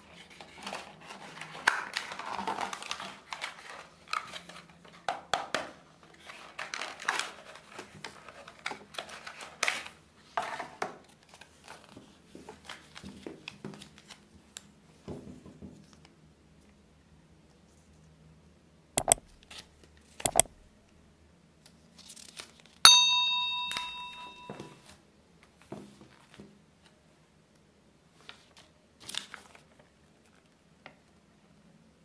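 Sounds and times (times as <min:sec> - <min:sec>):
paper crinkling and rustling: 0:00.2 - 0:05.0, 0:06.2 - 0:09.9, 0:28.3 - 0:30.4
bright ding: 0:22.9 - 0:24.8.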